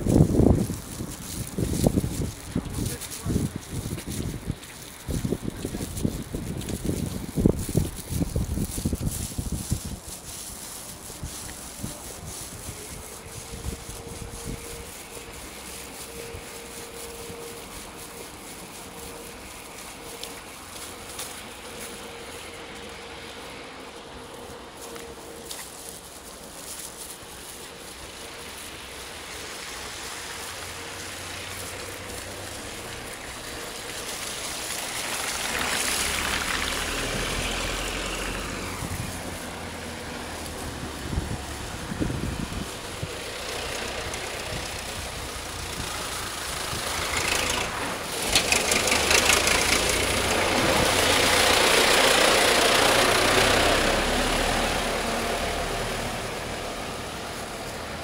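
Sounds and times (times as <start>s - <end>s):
tractor engine rumble: 0.0s - 58.0s
car hissing past on wet road: 28.0s - 58.0s.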